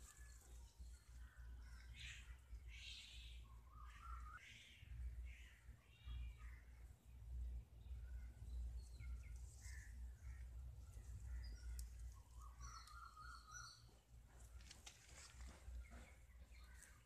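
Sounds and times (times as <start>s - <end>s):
steady low rumble: 0.6s - 13.2s.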